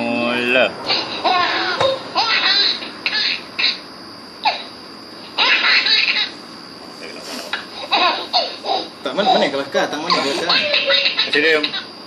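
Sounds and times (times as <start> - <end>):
baby laughing: 0.9 - 3.8, 5.4 - 6.3, 7.8 - 9.4, 10.1 - 11.9.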